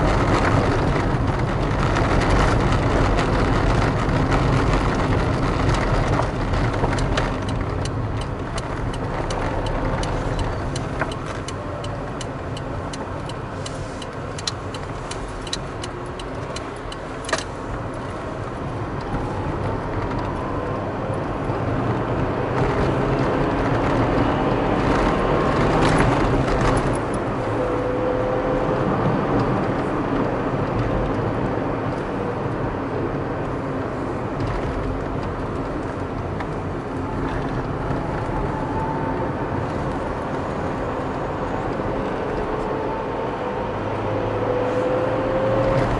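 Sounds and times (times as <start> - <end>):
car engine and tyre noise: 0.0 - 45.9.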